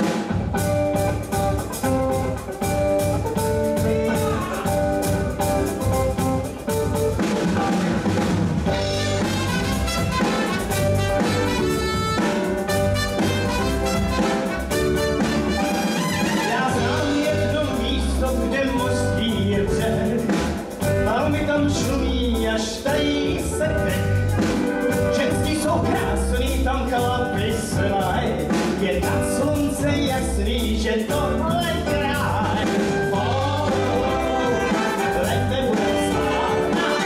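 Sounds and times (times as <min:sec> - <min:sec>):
drum kit beat: 0:00.0 - 0:37.0
saxophones and brass: 0:08.8 - 0:17.1, 0:33.6 - 0:37.0.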